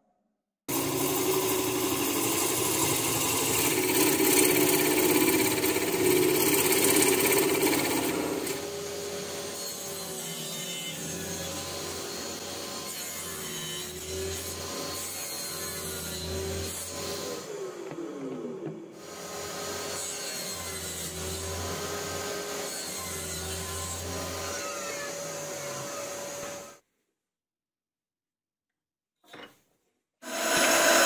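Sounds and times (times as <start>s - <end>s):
lathe motor hum: 0.7s - 8.8s
gouge cutting wood on lathe: 0.7s - 9.2s, 30.2s - 31.0s.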